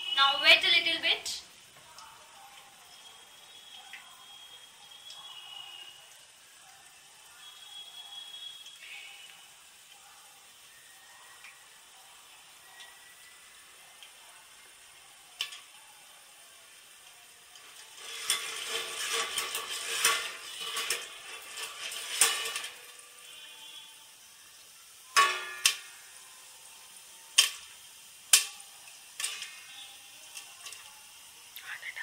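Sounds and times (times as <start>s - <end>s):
sizzling and rattling in wok: 11.4s - 32.0s
popcorn popping against lid: 17.6s - 23.1s, 25.1s - 26.0s, 27.3s - 30.9s.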